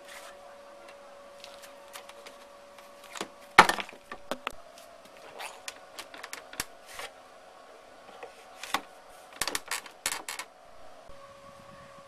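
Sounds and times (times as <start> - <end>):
faint steady hum: 0.0 - 12.0
clicks and knocks from handling parts: 3.0 - 7.1, 8.1 - 10.5.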